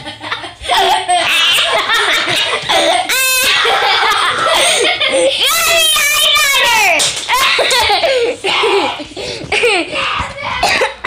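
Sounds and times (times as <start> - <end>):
children laughing: 0.0 - 11.0.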